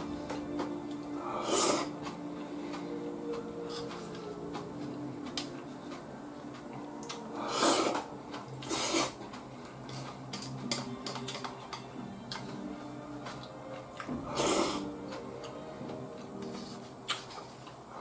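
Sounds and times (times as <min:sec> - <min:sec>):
chopsticks clicking against bowl: 0:01.8 - 0:07.3, 0:07.9 - 0:12.6
soup slurping: 0:08.6 - 0:09.2.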